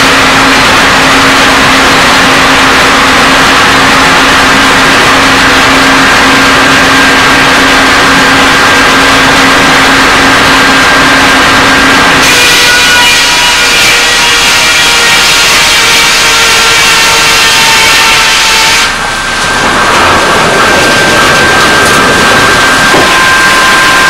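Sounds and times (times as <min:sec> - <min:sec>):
sawmill machinery droning: 0:00.0 - 0:24.0
high whining tones: 0:16.9 - 0:24.0.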